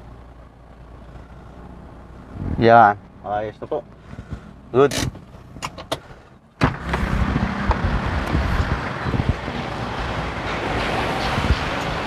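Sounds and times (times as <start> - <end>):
vehicle sound: 0.0 - 12.0
wind rushing: 2.3 - 2.7, 6.6 - 12.0.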